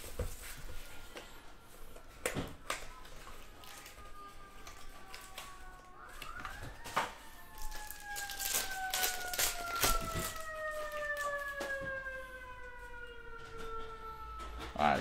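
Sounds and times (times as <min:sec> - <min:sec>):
siren wailing: 0:00.1 - 0:15.0
foil pack crinkling: 0:02.7 - 0:11.6.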